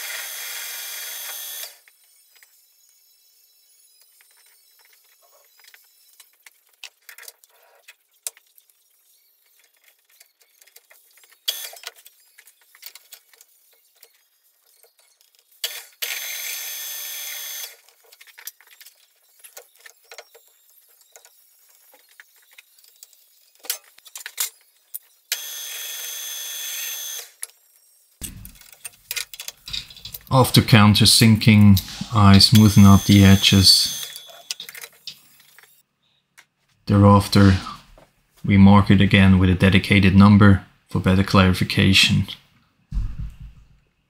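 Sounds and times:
lathe drilling with high whine: 0.0 - 1.8, 16.1 - 17.7, 25.3 - 27.2, 31.4 - 34.5
metal parts clattering: 28.2 - 30.4.

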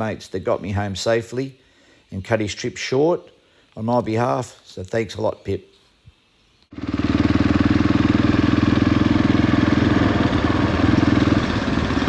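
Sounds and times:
motorcycle engine idling: 6.7 - 12.0.

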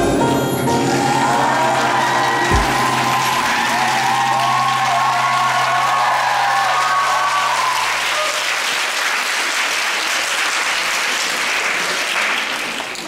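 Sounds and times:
held music notes: 0.0 - 8.2
audience applauding: 0.7 - 13.0.

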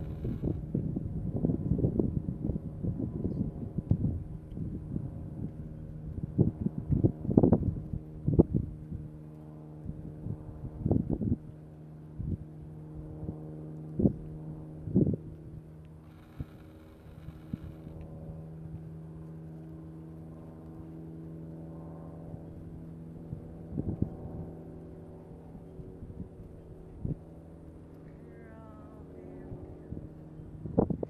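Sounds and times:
wind buffeting microphone: 0.0 - 18.9, 23.2 - 27.5, 28.2 - 31.0
low motor hum: 0.0 - 31.0.

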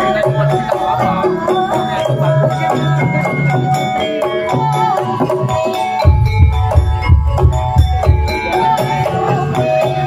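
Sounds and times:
metallophones playing ringing notes: 0.0 - 10.0
heavy drum strokes: 6.0 - 9.6.

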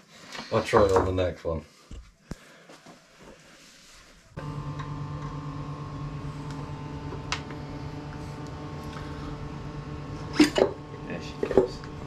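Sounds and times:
machine hum: 4.3 - 12.0.

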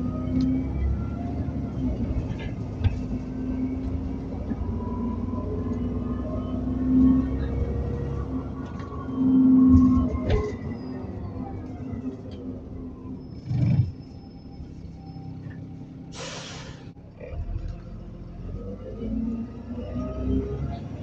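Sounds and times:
bus drivetrain rumble and whine: 0.0 - 21.0
air brake hiss: 16.1 - 16.9.

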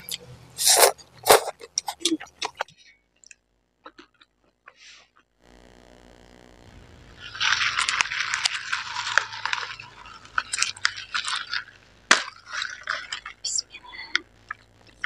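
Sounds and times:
plastic cup crackling and rattling: 7.2 - 13.5.

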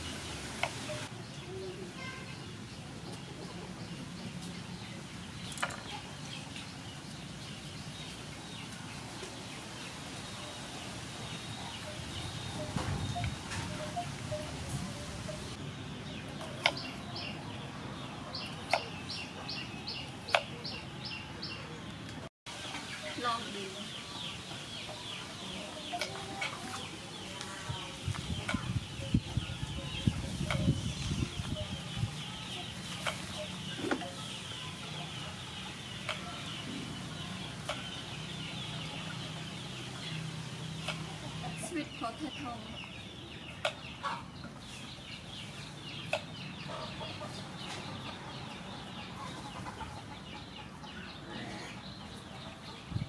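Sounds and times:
chickens clucking: 0.0 - 2.1, 2.8 - 53.0
bird chirping: 0.0 - 53.0.

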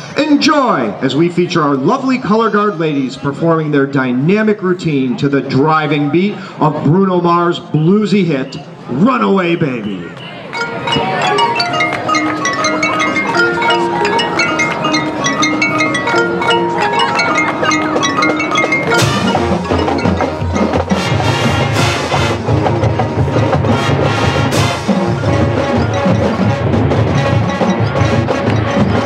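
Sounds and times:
drums: 10.5 - 29.0
mallet percussion pattern: 10.5 - 29.0
marching band playing: 10.5 - 29.0.

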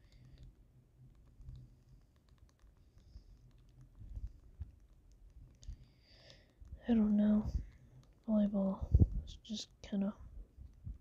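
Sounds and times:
game controller buttons clicking: 0.0 - 7.4
soft low thumps: 6.6 - 9.6.

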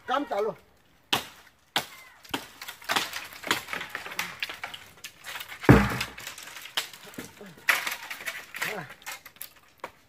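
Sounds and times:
wood knocking and cracking: 1.1 - 10.0.

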